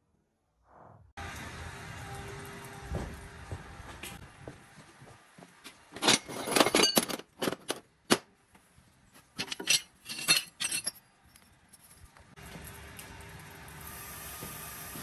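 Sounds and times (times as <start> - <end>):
steel pieces clinking: 6.0 - 7.8, 9.4 - 12.2.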